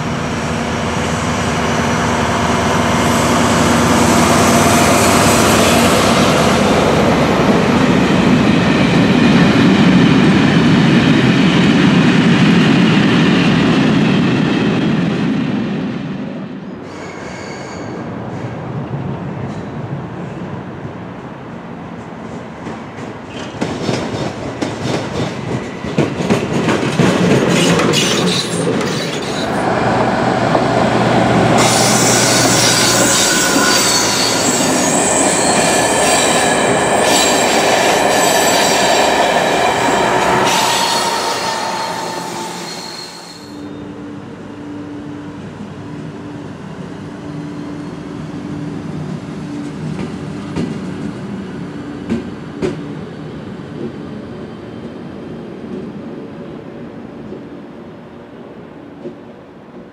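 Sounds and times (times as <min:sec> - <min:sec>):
electric locomotive hum: 0:00.0 - 0:16.9, 0:24.4 - 0:59.1
loud high wheel squeal: 0:16.8 - 0:18.1, 0:31.6 - 0:44.0
train wheels clicking over rail joints: 0:22.6 - 0:43.0.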